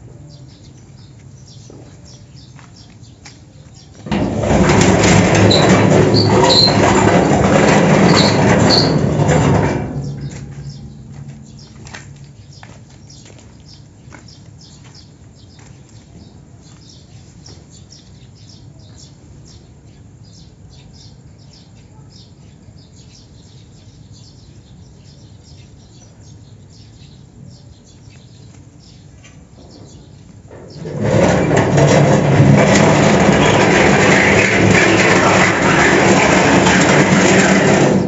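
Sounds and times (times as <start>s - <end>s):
metal gate creaking and grinding: 4.0s - 12.8s, 29.7s - 38.0s.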